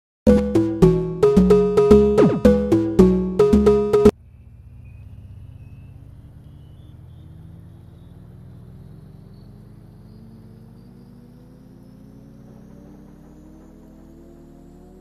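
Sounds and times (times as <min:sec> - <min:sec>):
electronic music with a beat: 0:00.3 - 0:04.1.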